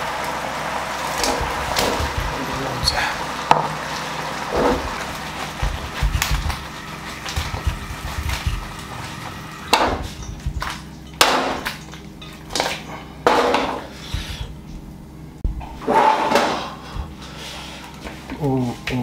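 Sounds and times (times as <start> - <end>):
food sizzling in wok: 0.0 - 10.3
pan knocking on grate: 1.2 - 3.8, 4.6 - 8.8, 9.7 - 11.8.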